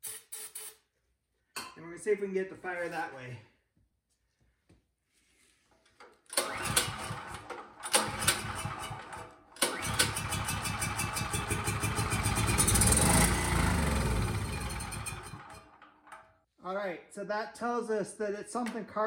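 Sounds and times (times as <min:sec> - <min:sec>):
generator engine cranking and running: 0:06.3 - 0:16.3.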